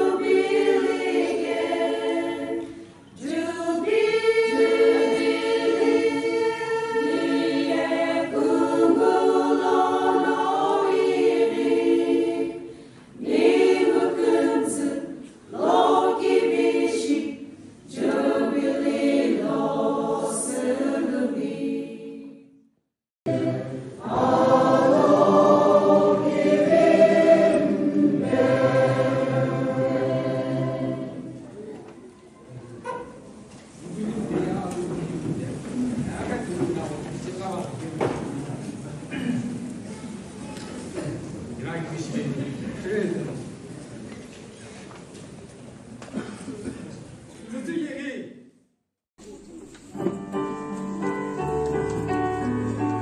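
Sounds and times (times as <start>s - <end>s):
mixed group singing: 0.0s - 22.6s, 23.3s - 31.7s
women's choir singing a hymn: 0.0s - 22.6s, 23.3s - 31.6s.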